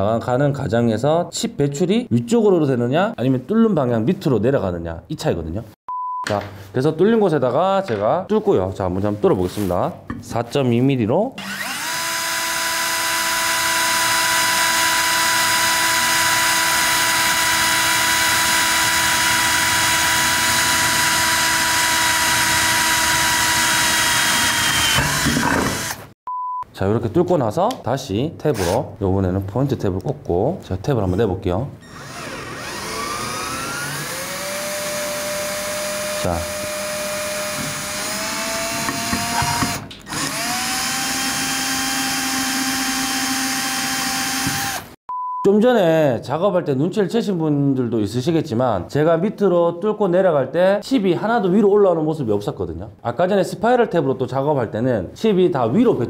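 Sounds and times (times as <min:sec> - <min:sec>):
drill drilling through steel: 0:11.4 - 0:26.2, 0:31.8 - 0:45.0.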